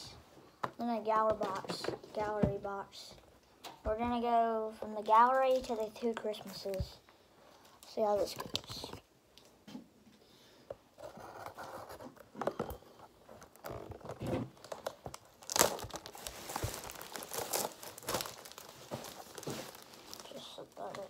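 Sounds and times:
plastic wrap crinkling and tearing: 13.3s - 21.0s.

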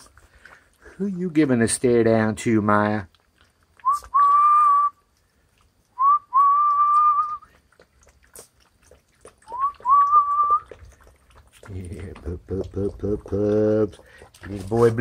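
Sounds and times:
puppies eating from metal pan: 0.0s - 4.3s, 5.3s - 15.0s
person whistling: 3.8s - 5.0s, 6.0s - 7.4s, 9.5s - 10.7s.

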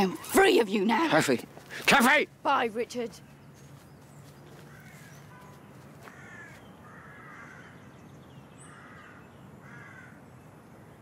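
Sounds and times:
crows cawing: 4.5s - 7.9s, 8.6s - 10.2s.

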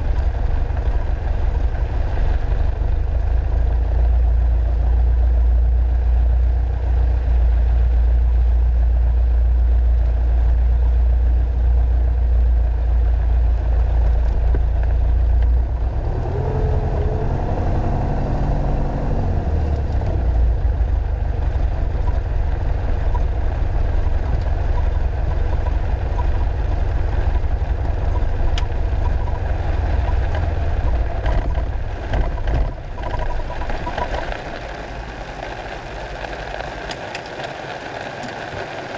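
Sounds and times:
aircraft engine and propeller drone: 30.3s - 38.9s.

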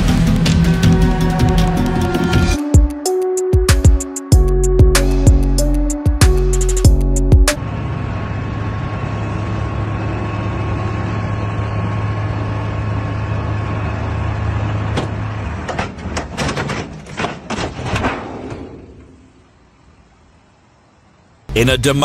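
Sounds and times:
diesel truck engine running: 0.0s - 2.7s, 4.4s - 17.5s
sharp irregular bangs and knocks: 14.9s - 19.4s.

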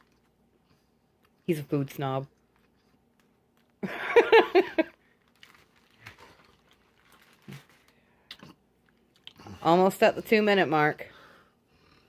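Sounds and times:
paper wrapper crinkling: 4.8s - 9.2s.

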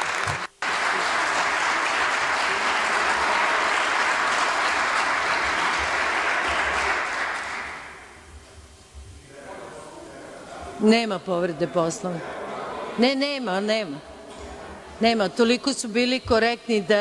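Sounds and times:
crowd clapping: 0.0s - 8.2s.

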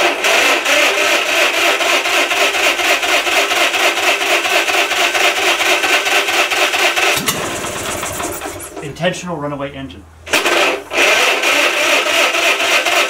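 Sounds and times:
engine running fast: 7.0s - 9.0s.

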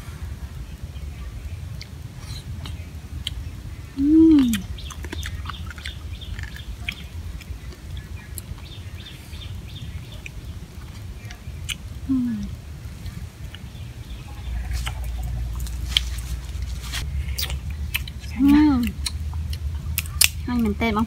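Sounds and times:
low steady rumble: 0.0s - 21.0s
chewing: 4.4s - 11.8s, 13.0s - 20.4s
crab shells cracking: 18.9s - 20.4s.

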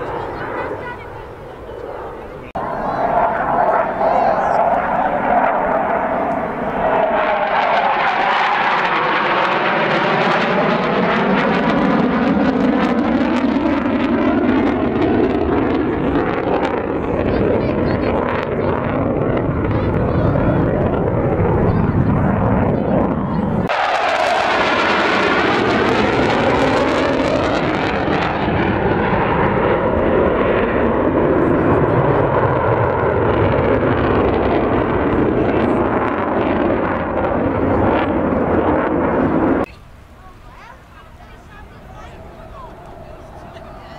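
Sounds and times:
aircraft engine overhead: 0.0s - 43.9s.

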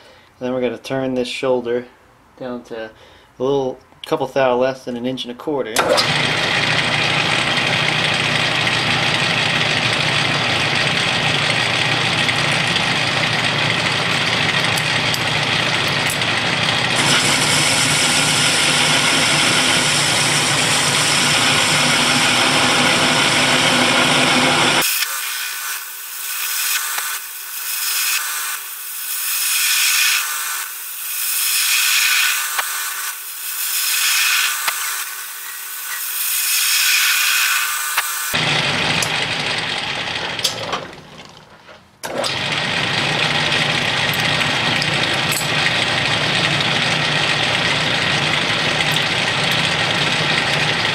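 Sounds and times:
metal lathe cutting: 5.8s - 40.5s, 42.1s - 50.9s.

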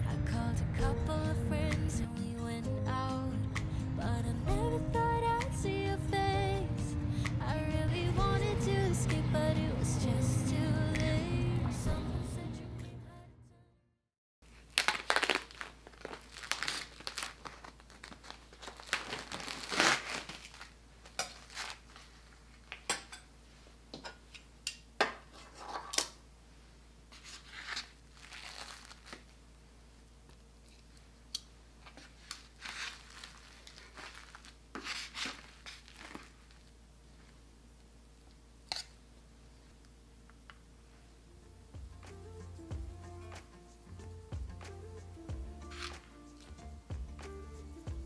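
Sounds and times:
plastic wrap crinkling and tearing: 14.4s - 22.8s, 27.2s - 29.4s, 31.9s - 36.7s.

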